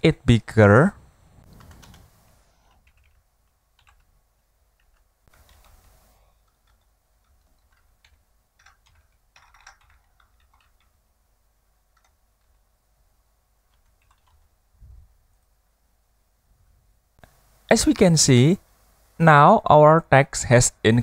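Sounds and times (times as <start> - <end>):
soft hiss: 0.0 - 9.3, 10.2 - 21.0
typing on computer keyboard: 1.5 - 2.1, 2.7 - 4.1, 4.8 - 11.0, 11.9 - 12.6, 13.7 - 14.5.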